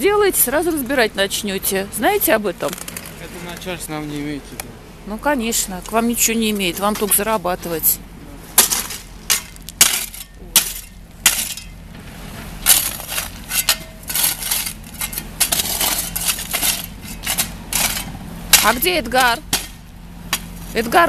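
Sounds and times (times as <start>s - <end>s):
shovels scraping crushed stone: 8.6s - 11.8s, 12.5s - 19.8s.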